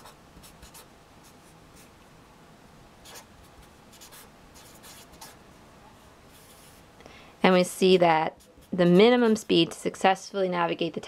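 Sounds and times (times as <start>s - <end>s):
marker scratching on paper: 0.0s - 1.9s, 3.0s - 5.4s, 6.3s - 6.8s, 7.5s - 9.9s.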